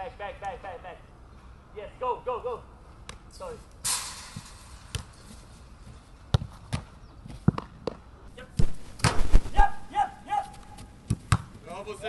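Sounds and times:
football thuds: 4.4s - 5.3s, 5.9s - 8.0s, 10.4s - 11.6s
goalkeeper landing on grass: 8.6s - 9.5s.

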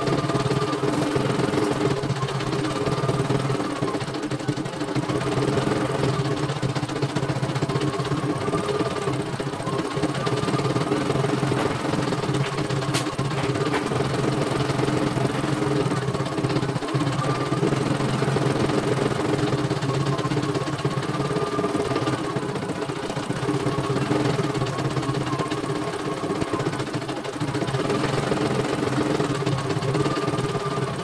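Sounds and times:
embroidery machine stitching: 0.0s - 31.0s
high machine whine: 0.0s - 31.0s.

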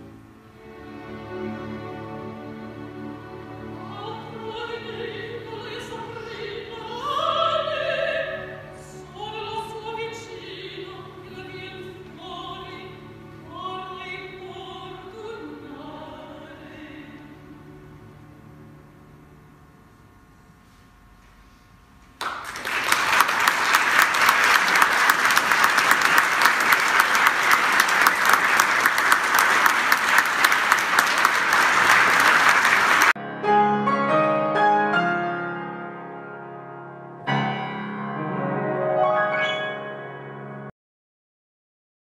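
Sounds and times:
audience applauding: 22.2s - 33.2s
solo piano music: 33.2s - 40.7s.

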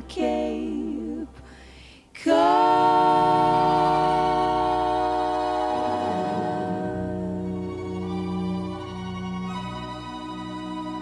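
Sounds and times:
person singing with vibrato: 0.0s - 1.4s, 2.2s - 8.9s.

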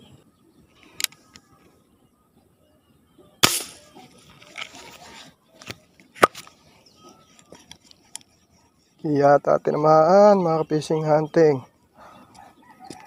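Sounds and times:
fishing shot snap: 3.4s - 3.9s.

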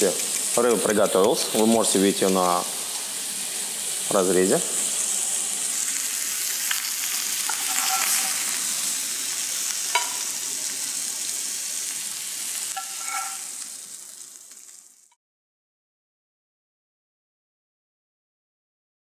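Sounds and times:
fish sizzling in a grill pan: 0.0s - 15.2s
spatula clinking on pan: 7.5s - 8.5s, 9.9s - 10.3s, 12.8s - 13.5s.

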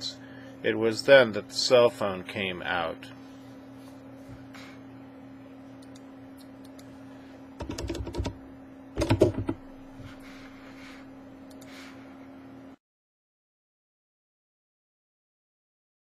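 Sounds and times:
steady low hum: 0.0s - 12.8s
computer keyboard typing: 7.6s - 8.4s, 9.0s - 9.6s.

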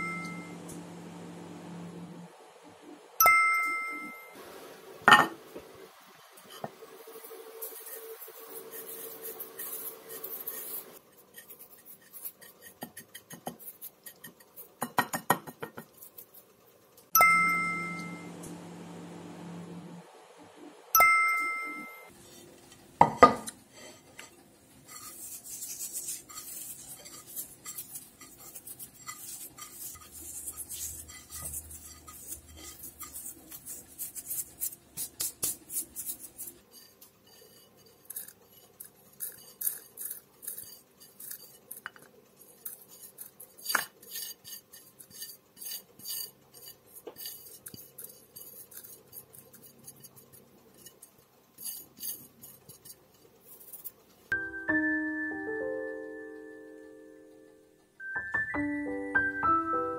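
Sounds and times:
dried herbs crackling when rubbed: 6.4s - 14.8s, 24.7s - 54.0s.

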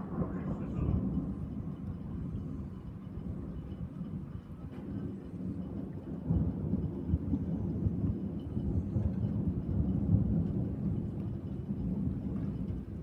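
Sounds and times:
rolling thunder: 0.0s - 13.0s.

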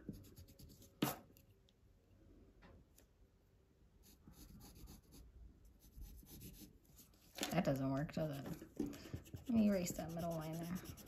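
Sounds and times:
pencil tapping on paper: 8.4s - 11.0s.

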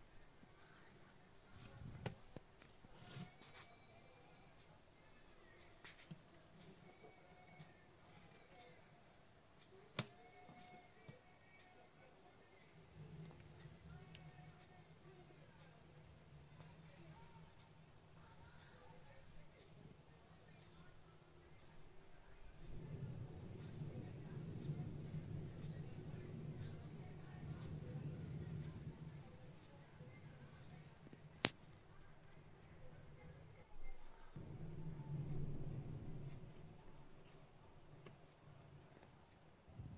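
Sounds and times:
crickets chirping: 0.0s - 39.9s
low hum: 20.8s - 31.2s, 32.3s - 38.1s.

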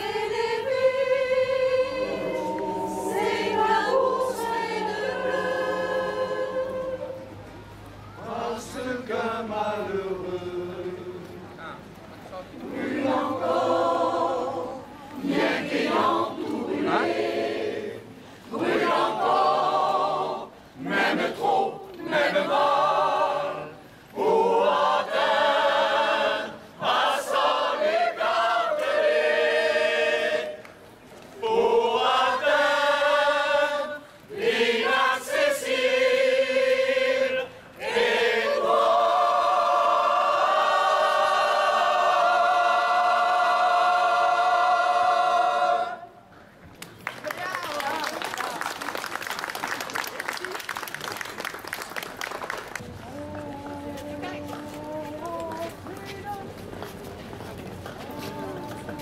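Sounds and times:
mixed choir singing unaccompanied: 0.0s - 11.4s, 12.6s - 46.3s.

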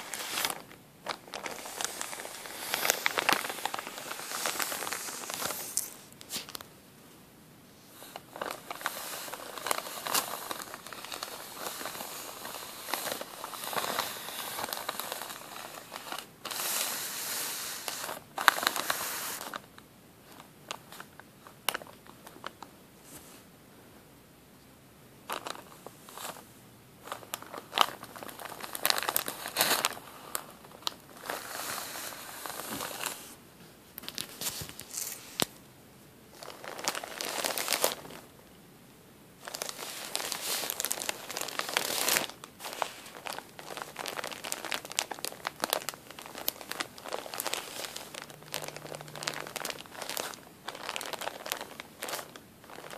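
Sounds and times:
plastic bag crinkling: 0.0s - 6.7s, 8.0s - 22.7s, 25.3s - 26.4s, 27.0s - 33.4s, 34.0s - 35.5s, 36.3s - 38.3s, 39.4s - 52.9s.

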